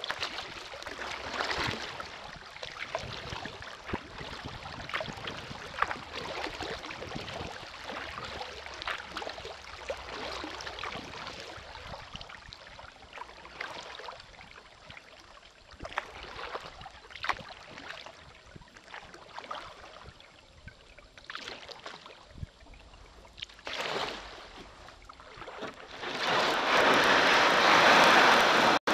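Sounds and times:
paddle splashing water: 0:00.0 - 0:28.9
loud rushing noise: 0:26.2 - 0:28.9.

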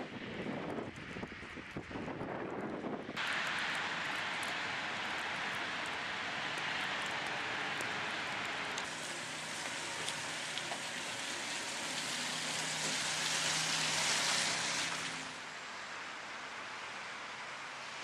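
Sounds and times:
wet snow hissing: 0:03.2 - 0:15.5.

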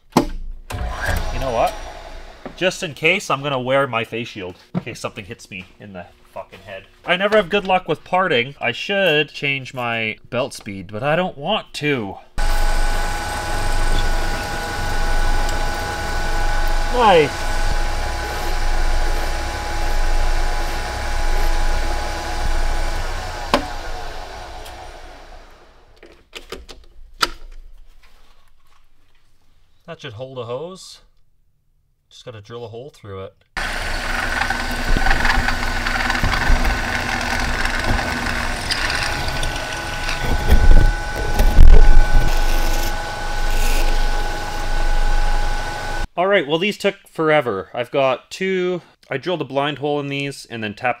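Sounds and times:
metal lathe running: 0:00.7 - 0:02.7, 0:12.4 - 0:25.8, 0:33.6 - 0:46.1
hand file on spinning metal: 0:33.8 - 0:44.6
heavy thumps: 0:34.8 - 0:42.4.

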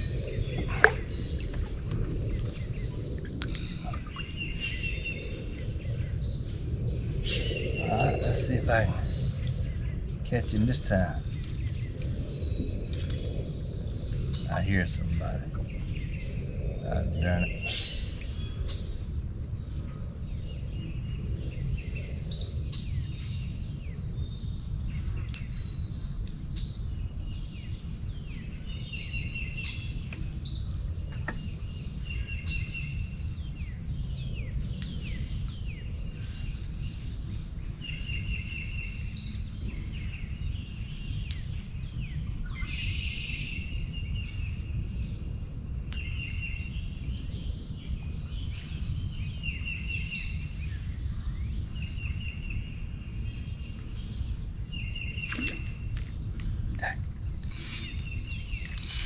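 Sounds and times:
insects trilling: 0:00.0 - 0:23.0, 0:54.0 - 0:59.0
low rumble: 0:00.0 - 0:26.2
birds chirping: 0:00.0 - 0:59.0.

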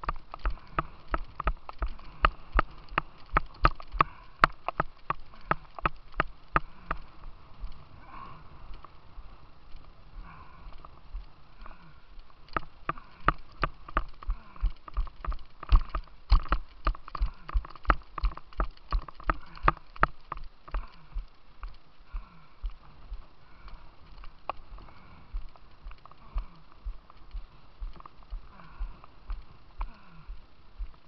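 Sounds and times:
quick footsteps: 0:12.6 - 0:31.0.

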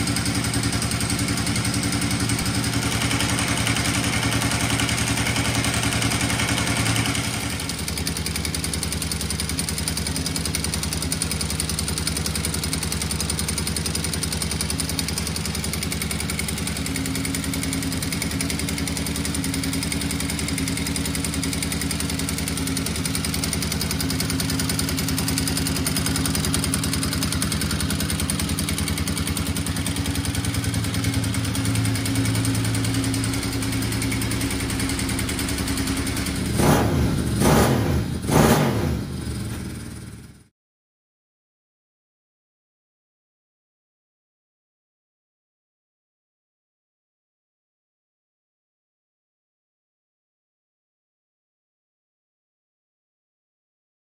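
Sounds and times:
motorcycle engine idling with rattle: 0:00.0 - 0:40.5.

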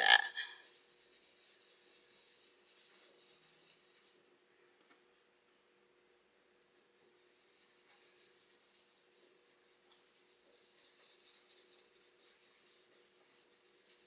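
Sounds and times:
faint steady hum: 0:00.0 - 0:14.0
brush swishing over stencil: 0:00.6 - 0:04.4, 0:06.8 - 0:14.0.

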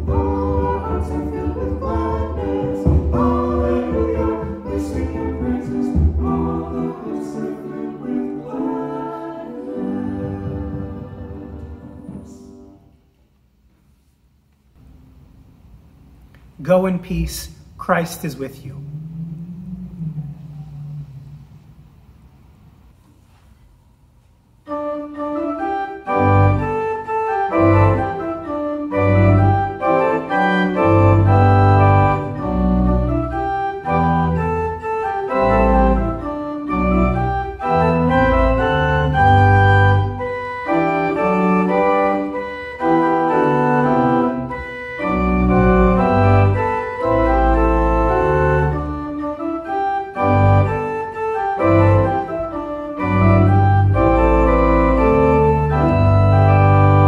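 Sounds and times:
pipe organ chords: 0:00.0 - 0:13.0, 0:24.6 - 0:57.0
deep pedal bass notes: 0:17.2 - 0:22.9.

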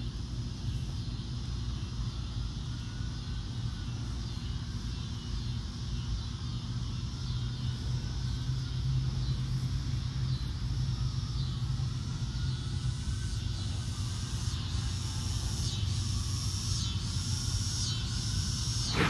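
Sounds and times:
high hiss: 0:14.7 - 0:19.0.

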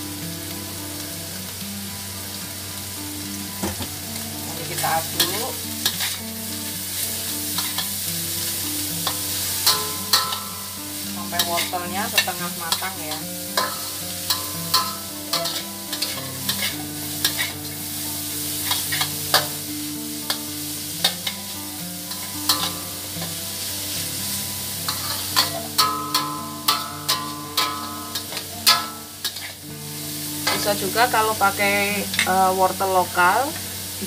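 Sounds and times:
food sizzling in oil: 0:00.0 - 0:34.0
metal spatula scraping a wok: 0:04.7 - 0:06.2, 0:07.4 - 0:19.6, 0:20.3 - 0:23.8, 0:24.4 - 0:30.8.

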